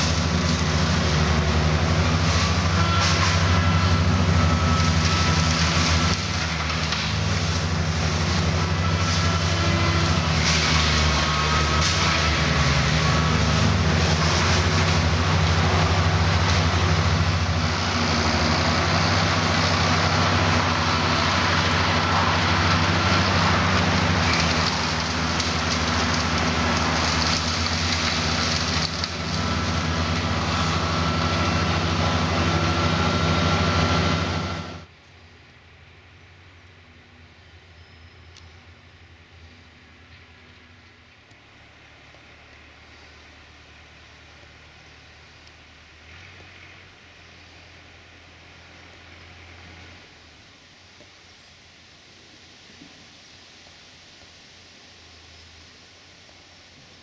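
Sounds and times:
continuous rushing hiss: 0.0s - 57.0s
tractor engine drone: 0.0s - 57.0s.

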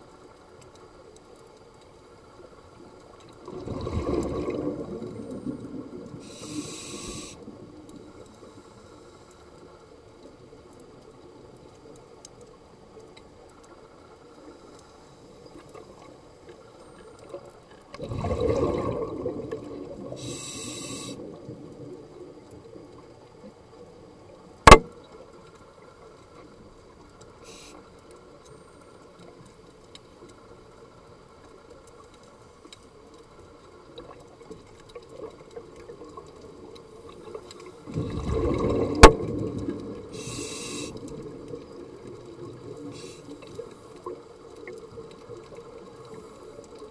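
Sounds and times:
underwater bubbling exhalations: 3.4s - 7.3s, 18.0s - 22.1s, 37.8s - 44.8s
short high hiss: 6.2s - 7.4s, 20.2s - 21.2s, 40.1s - 41.0s, 42.9s - 43.4s.

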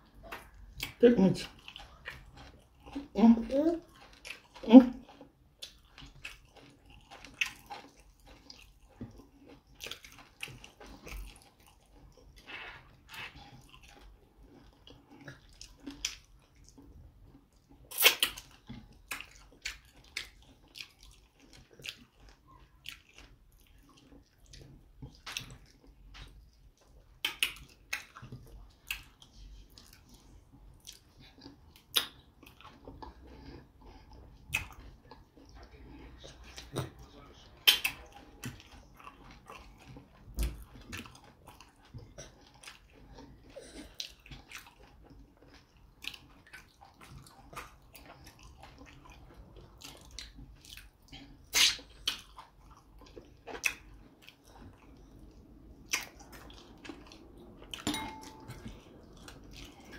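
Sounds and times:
wet chewing and lip smacks: 0.0s - 3.2s, 3.8s - 59.9s.

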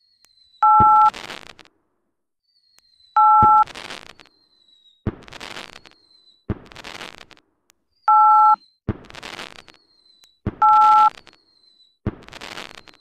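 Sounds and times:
firework rockets whistling: 0.0s - 1.7s, 2.6s - 7.4s, 8.8s - 13.0s
two-tone electronic beep: 0.6s - 1.1s, 3.2s - 3.7s, 8.1s - 8.6s, 10.6s - 11.2s
firework crackling: 1.1s - 1.7s, 3.5s - 4.2s, 5.1s - 5.9s, 6.6s - 7.4s, 8.9s - 9.8s, 12.1s - 13.0s
firework bangs: 5.1s - 5.9s, 6.5s - 7.4s, 8.9s - 9.7s, 12.1s - 13.0s.

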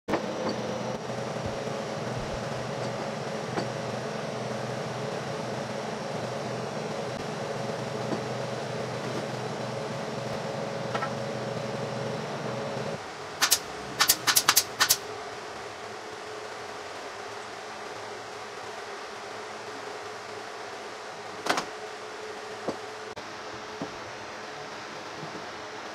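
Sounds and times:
machine hum: 0.1s - 25.9s
pneumatic nail gun shots: 13.4s - 15.0s.

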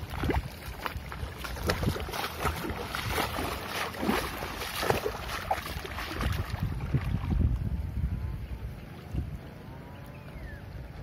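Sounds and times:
footsteps wading through water: 0.0s - 7.7s
wind rumbling on microphone: 0.0s - 11.0s.

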